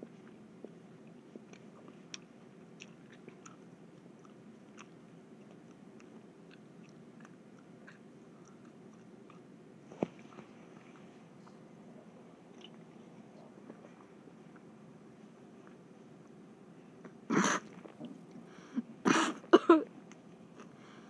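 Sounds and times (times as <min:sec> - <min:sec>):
mouth clicks and smacks chewing: 0:00.2 - 0:09.5, 0:12.5 - 0:12.8.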